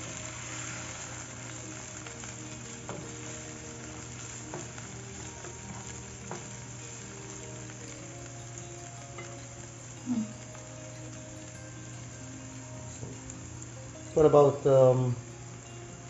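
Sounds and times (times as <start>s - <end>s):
vegetables sizzling in frying pan: 0.0s - 16.0s.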